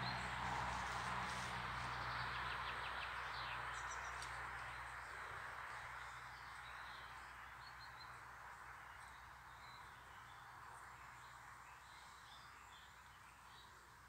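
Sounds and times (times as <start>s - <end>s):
outdoor background hiss: 0.0s - 14.0s.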